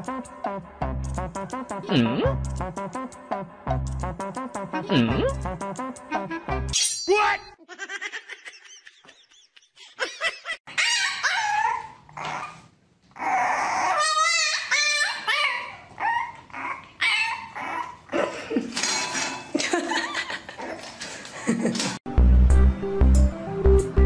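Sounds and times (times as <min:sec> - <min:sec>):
puppies whining and yipping: 0:10.6 - 0:18.2.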